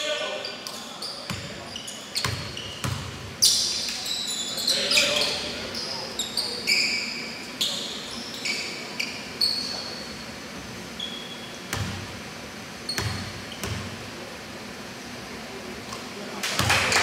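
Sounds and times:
sneakers squeaking on court floor: 0.1s - 12.1s, 12.7s - 14.0s
basketball bouncing: 2.2s - 3.3s, 11.7s - 12.1s.

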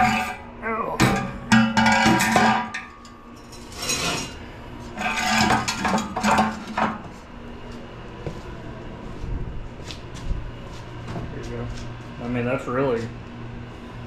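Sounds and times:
metallic clatter and knocks: 1.0s - 4.3s, 5.0s - 7.0s.

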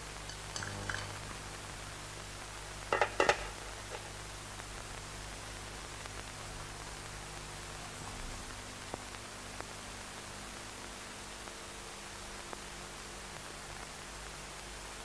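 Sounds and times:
steady hiss: 0.0s - 15.0s
cutlery and dishes clinking: 0.3s - 1.2s.

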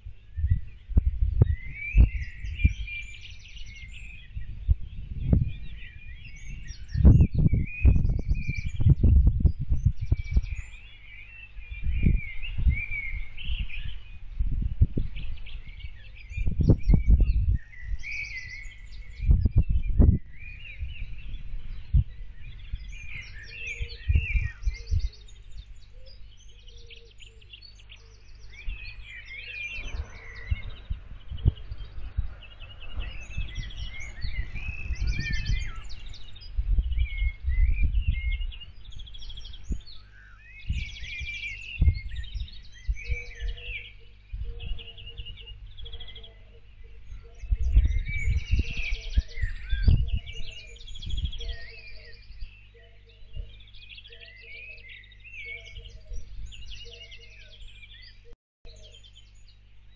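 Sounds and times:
low rumbling thumps: 0.0s - 3.1s, 4.3s - 10.7s, 29.7s - 39.9s
small birds chirping and singing: 0.0s - 59.9s.

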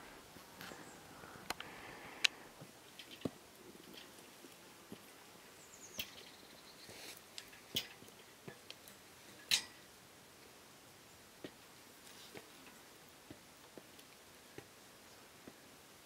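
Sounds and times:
carabiners clinking on metal: 9.4s - 9.8s.

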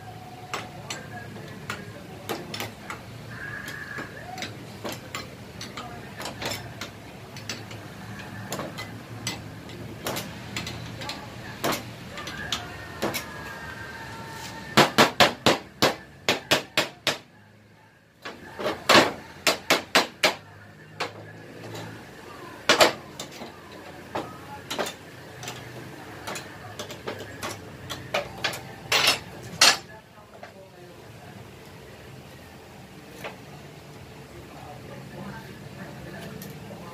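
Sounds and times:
tools clinking: 0.5s - 13.5s, 22.7s - 30.6s.

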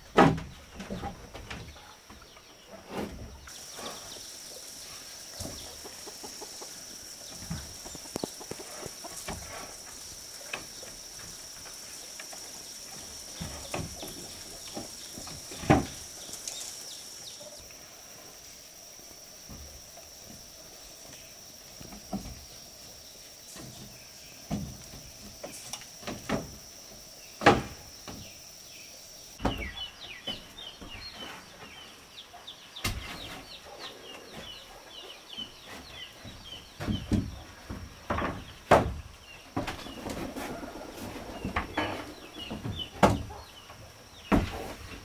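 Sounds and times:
birds chirping: 0.0s - 45.0s
wooden planks knocking: 5.4s - 9.8s, 13.2s - 16.4s.

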